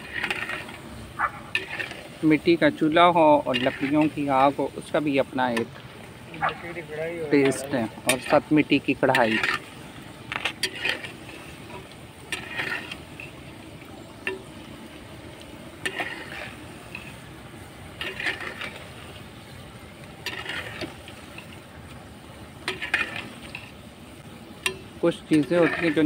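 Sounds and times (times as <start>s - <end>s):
metal spoon scraping pot: 0.0s - 0.9s, 1.5s - 5.7s, 7.3s - 13.6s, 15.8s - 17.3s, 17.9s - 19.6s, 20.2s - 21.6s, 22.6s - 23.8s, 24.7s - 26.0s
food frying in hot oil: 0.0s - 26.0s.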